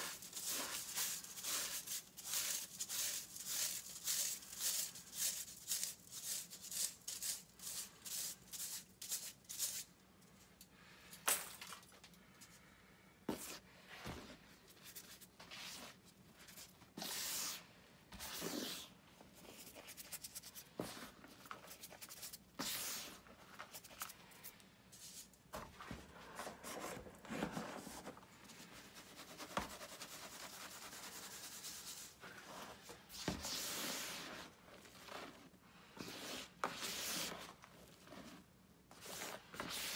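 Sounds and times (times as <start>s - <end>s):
chalk lumps crunching: 0.0s - 9.9s
chalk rubbed through mesh sieve: 0.0s - 9.9s, 28.8s - 35.3s.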